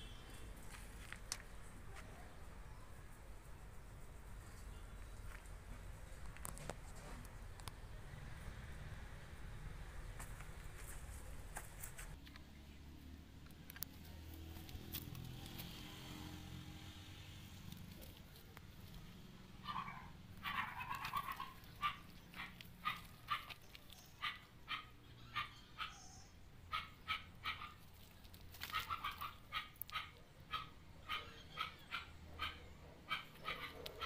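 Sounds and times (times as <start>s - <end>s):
dog barking: 19.6s - 23.5s, 24.2s - 26.0s, 26.7s - 27.8s, 28.7s - 34.0s.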